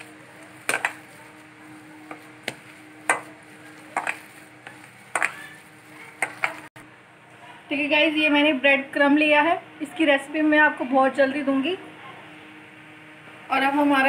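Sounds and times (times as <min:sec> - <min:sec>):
hand mixing food in bowl: 0:00.0 - 0:06.7.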